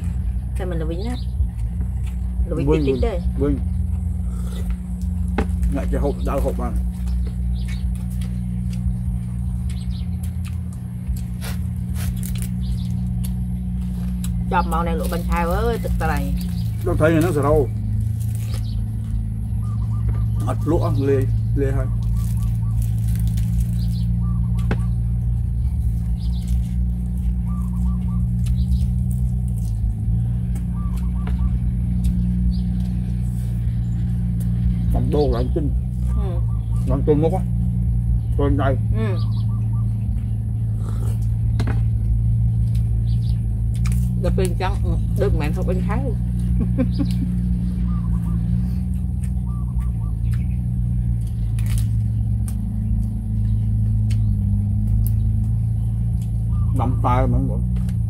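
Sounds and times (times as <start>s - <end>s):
bird chirping: 0.0s - 58.0s
crunching of people eating: 0.0s - 58.0s
low motor hum: 0.0s - 58.0s
low rumble: 0.0s - 58.0s
bird call: 19.5s - 21.0s, 27.4s - 28.9s, 30.6s - 31.8s, 46.7s - 50.7s, 56.4s - 57.0s
small clicks from eating: 49.0s - 56.4s.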